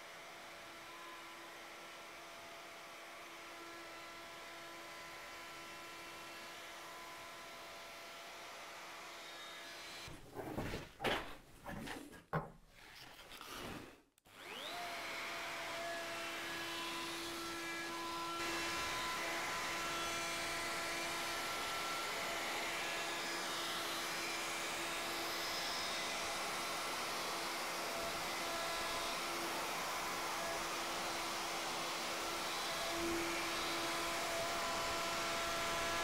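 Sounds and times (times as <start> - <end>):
router motor whining: 14.3 - 36.0.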